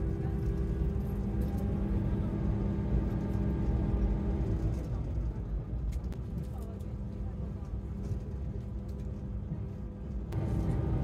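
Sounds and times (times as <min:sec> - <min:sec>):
railcar rumble: 0:00.0 - 0:11.0
droning hum: 0:05.6 - 0:11.0.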